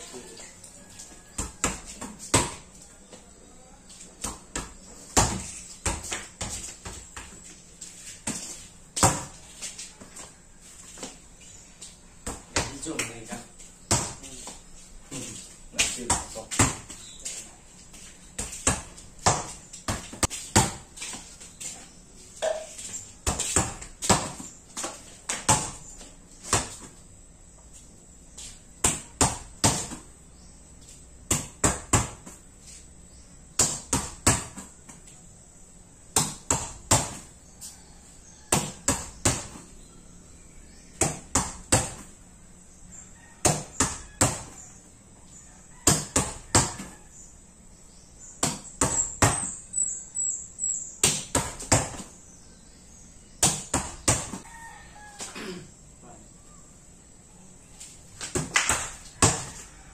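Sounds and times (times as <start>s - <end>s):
ball bouncing on hard floor: 1.3s - 2.7s, 4.2s - 7.4s, 8.2s - 9.4s, 13.8s - 14.6s, 15.8s - 17.0s, 18.4s - 20.9s, 22.4s - 25.8s, 28.8s - 30.1s, 31.3s - 32.4s, 33.6s - 34.8s, 36.2s - 37.3s, 38.5s - 39.6s, 41.0s - 42.1s, 43.4s - 44.6s, 45.8s - 46.9s, 48.4s - 49.6s, 51.0s - 52.1s, 53.4s - 54.4s, 58.2s - 59.6s
volleyball smacked by hand: 28.8s - 30.1s, 31.3s - 32.4s, 33.6s - 35.0s, 36.1s - 37.3s, 38.5s - 39.6s, 41.0s - 42.1s, 51.0s - 52.1s, 53.4s - 54.4s, 58.2s - 59.6s.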